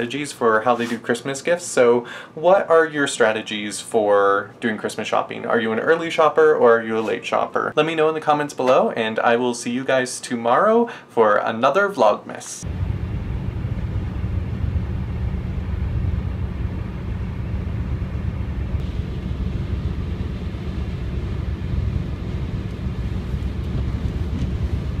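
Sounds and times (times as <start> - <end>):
car road and engine rumble: 12.6 - 25.0.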